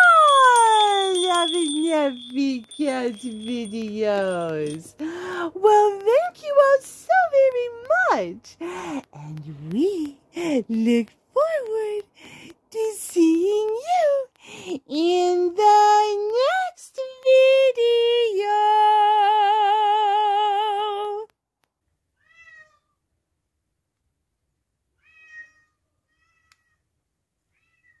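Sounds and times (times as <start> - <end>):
cat meowing: 25.0 - 26.8.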